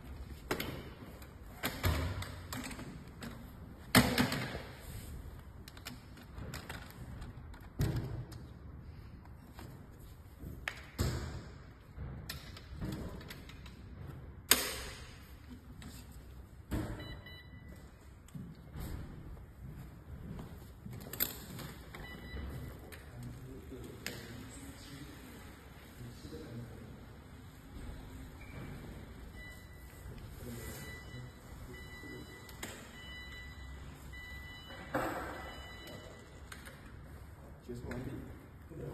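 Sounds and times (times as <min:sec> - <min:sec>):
metal wheelchair frame clicks and knocks: 0:12.3 - 0:13.9.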